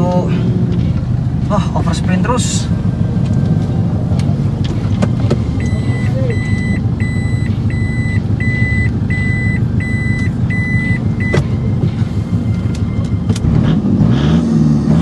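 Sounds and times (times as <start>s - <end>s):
diesel engine idling: 0.0s - 14.0s
reversing beeper beeping: 5.6s - 13.5s
engine revving: 12.9s - 15.0s.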